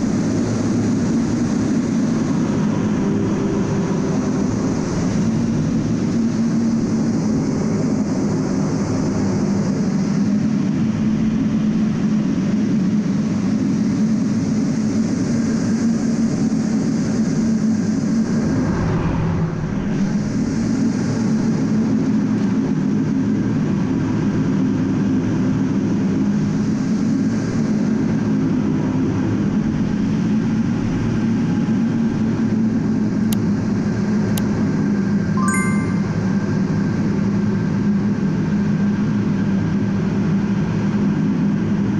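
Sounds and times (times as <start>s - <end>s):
jet engines droning: 0.0s - 12.7s.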